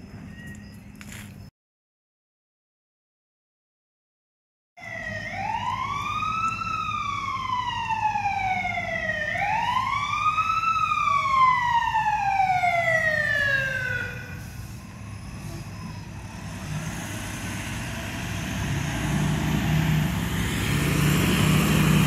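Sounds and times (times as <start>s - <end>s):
fire engine siren wailing: 4.8s - 22.0s.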